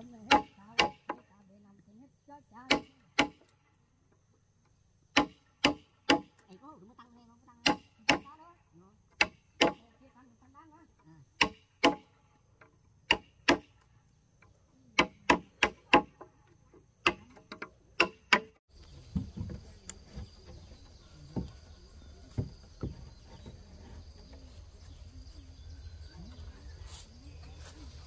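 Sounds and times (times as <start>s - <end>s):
hand tool striking wood: 0.2s - 1.2s, 2.7s - 3.5s, 5.1s - 6.4s, 9.1s - 9.8s, 11.4s - 13.8s, 15.0s - 16.3s, 17.0s - 18.6s
faint knocks: 19.0s - 24.5s.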